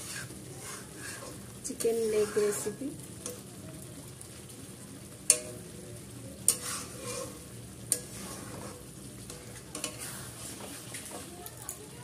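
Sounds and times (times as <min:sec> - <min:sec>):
spatula scraping a steel pan: 0:00.0 - 0:02.8, 0:06.5 - 0:11.2
gravy sizzling: 0:00.0 - 0:12.0.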